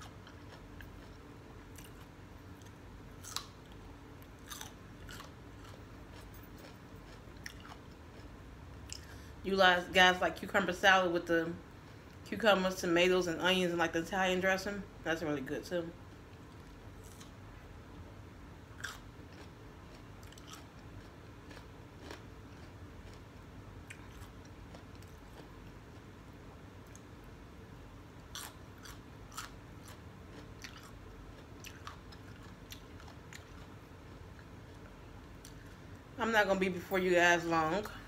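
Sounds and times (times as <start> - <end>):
chewing crunchy cucumber: 0.0 - 9.2, 16.0 - 17.4, 18.7 - 27.3, 28.2 - 35.8.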